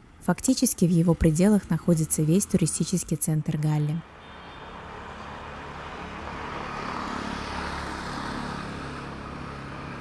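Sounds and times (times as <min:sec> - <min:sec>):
motor vehicle passing by: 0:04.7 - 0:10.0.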